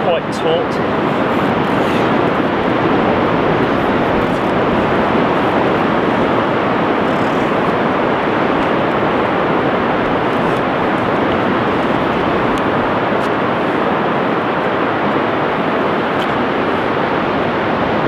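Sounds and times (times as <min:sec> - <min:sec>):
sea surf breaking on beach: 0:00.0 - 0:18.0.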